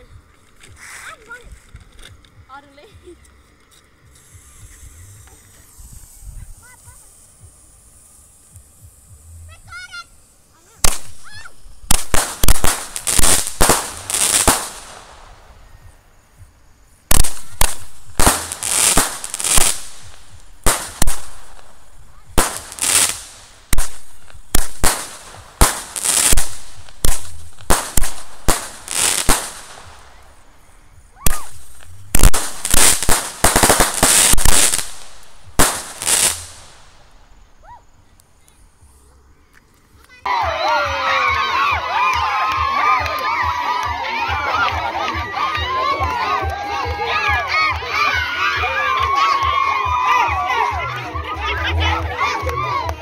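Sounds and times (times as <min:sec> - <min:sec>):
fireworks bangs with echo: 0:10.8 - 0:15.7, 0:17.1 - 0:37.6.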